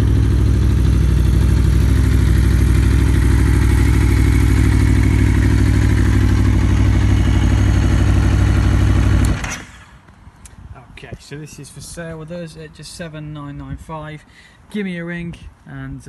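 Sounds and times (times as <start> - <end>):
motorcycle engine idling: 0.0 - 9.4.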